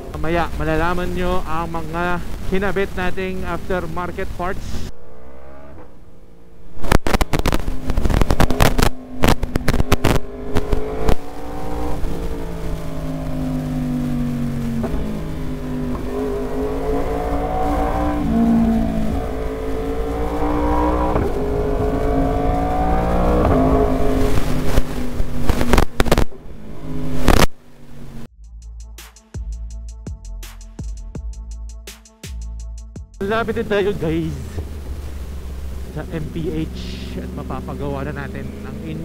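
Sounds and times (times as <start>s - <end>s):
motorcycle engine while riding: 0.0s - 28.3s, 33.4s - 39.0s
microphone crackles: 6.6s - 26.4s, 27.0s - 27.6s.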